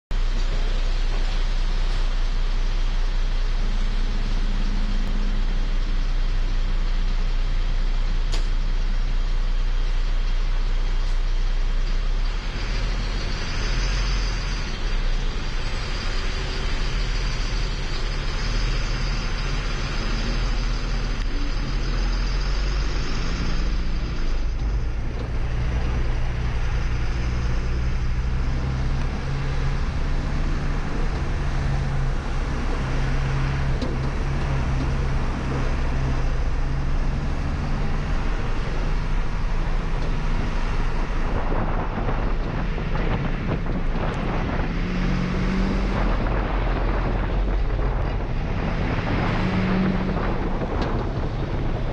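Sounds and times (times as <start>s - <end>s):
truck diesel engine running: 0.1s - 51.9s.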